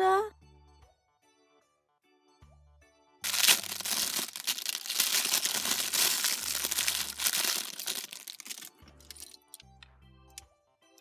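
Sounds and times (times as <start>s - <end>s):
plastic bag crinkling: 3.2s - 9.6s.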